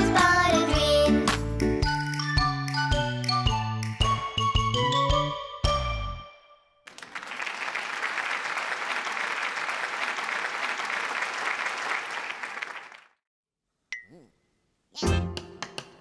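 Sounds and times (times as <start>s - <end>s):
audience applause: 6.9s - 13.2s.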